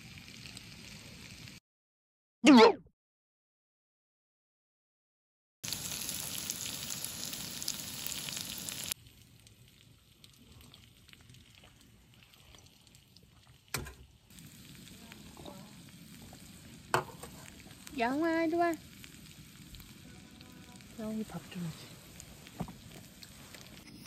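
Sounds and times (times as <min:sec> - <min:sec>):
food sizzling in a hot pan: 0:00.0 - 0:01.6, 0:05.6 - 0:24.0.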